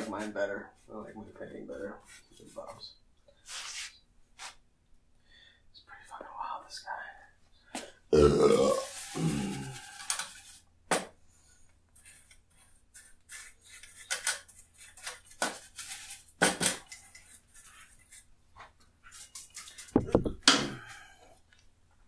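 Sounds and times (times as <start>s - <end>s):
burp: 8.1s - 9.6s
painting tool scraping palette: 11.9s - 20.2s.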